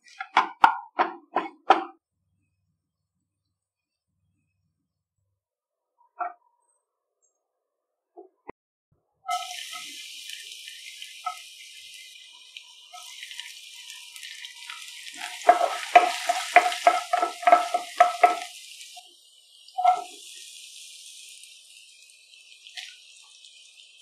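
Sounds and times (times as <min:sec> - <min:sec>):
spatula tapping and scraping pan: 0:00.1 - 0:02.0, 0:15.2 - 0:18.5
garlic sizzling in hot oil: 0:09.3 - 0:24.0.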